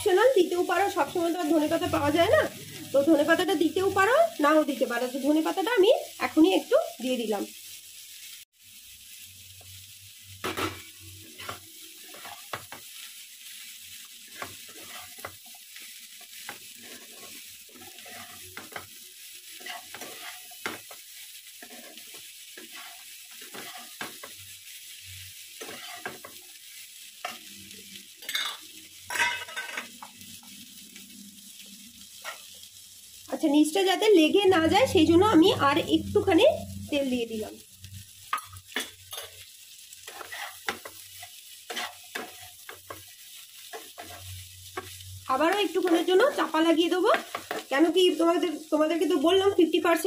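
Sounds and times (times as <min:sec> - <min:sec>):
potatoes sizzling in oil: 0:00.0 - 0:50.0
metal spatula scraping pan: 0:10.4 - 0:12.9, 0:14.2 - 0:15.6, 0:16.2 - 0:18.9, 0:19.6 - 0:21.0, 0:21.6 - 0:24.4, 0:25.6 - 0:26.4, 0:40.0 - 0:43.1.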